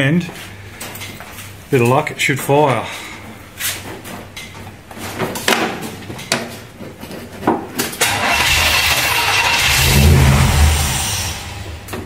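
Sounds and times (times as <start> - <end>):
car engine cranking and starting: 8.0 - 12.0.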